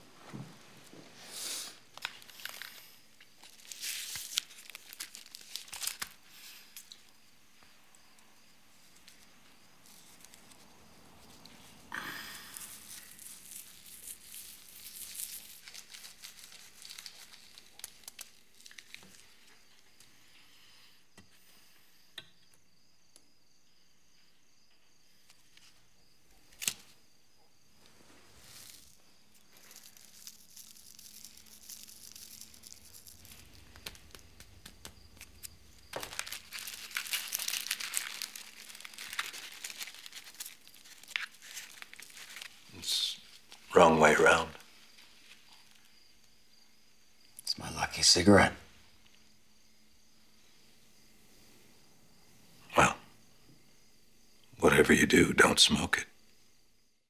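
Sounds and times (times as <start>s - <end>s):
cigarette paper rustling: 0.8s - 7.2s, 8.8s - 11.7s, 12.4s - 20.1s, 27.8s - 46.0s
cigarette pack crinkling: 1.7s - 7.2s, 8.8s - 11.6s, 12.2s - 20.1s, 26.4s - 27.0s, 27.8s - 46.4s.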